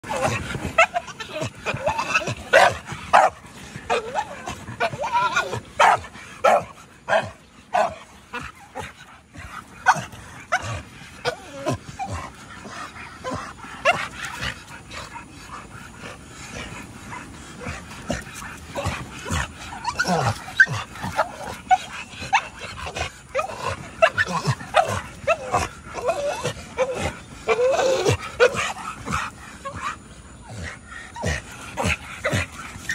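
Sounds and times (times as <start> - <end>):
dog yipping and barking: 0.8 - 8.0.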